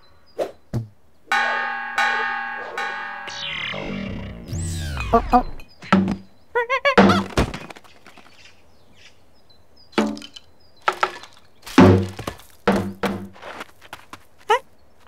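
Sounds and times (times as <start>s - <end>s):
cartoon crash: 1.3s - 6.1s
hollow knocks and thuds: 10.9s - 13.4s.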